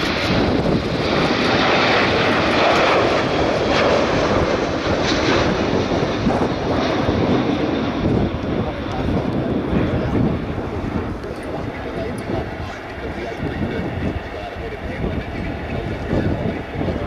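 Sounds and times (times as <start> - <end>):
jet engine taking off: 0.0 - 17.0.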